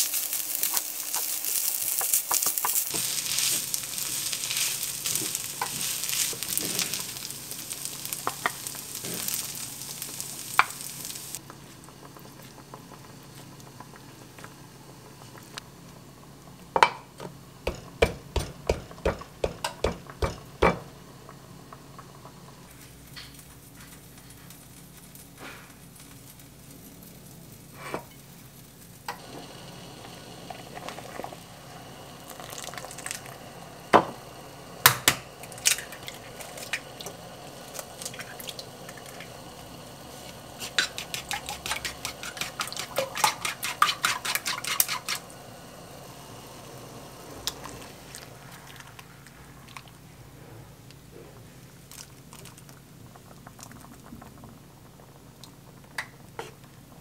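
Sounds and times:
water boiling in a pot: 0:00.0 - 0:57.0
eggs beaten in a bowl: 0:40.6 - 0:45.3.

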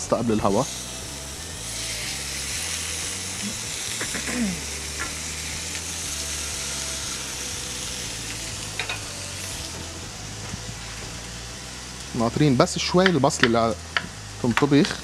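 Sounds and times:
meat sizzling in a frying pan: 0:00.0 - 0:15.0.

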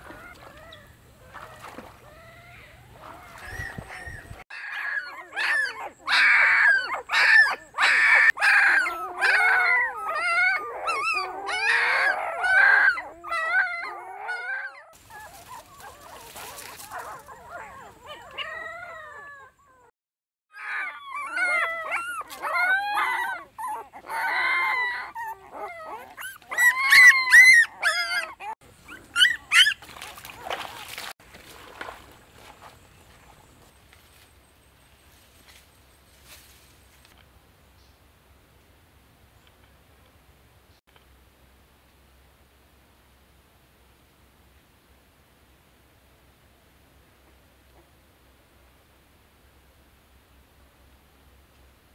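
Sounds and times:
puppy whimpering and crying: 0:02.0 - 0:19.9, 0:20.5 - 0:29.8.

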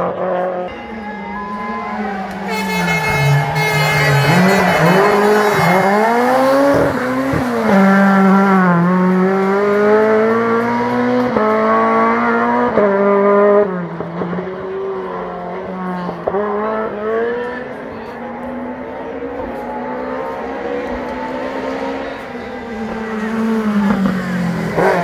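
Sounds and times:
car engine revving with upshifts: 0:01.4 - 0:25.0.

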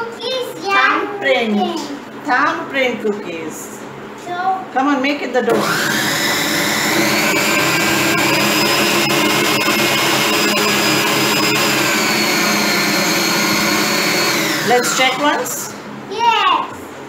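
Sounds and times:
food processor motor running: 0:05.5 - 0:15.8.

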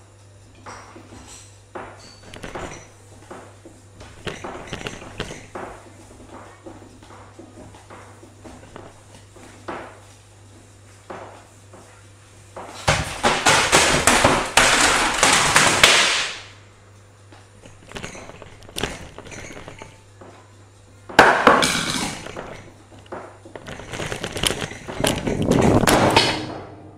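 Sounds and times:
clattering bursts: 0:02.2 - 0:02.9, 0:04.0 - 0:05.8, 0:12.9 - 0:16.5, 0:17.6 - 0:20.0, 0:21.2 - 0:26.7
picture frame crashing on floor: 0:12.8 - 0:16.5.

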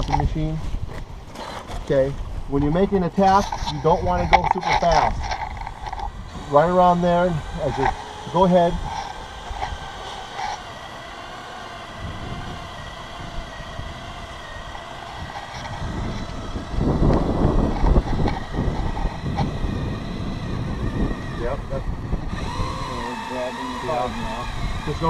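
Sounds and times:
cordless drill whining: 0:03.3 - 0:25.0
rough low rumble: 0:12.0 - 0:23.1.

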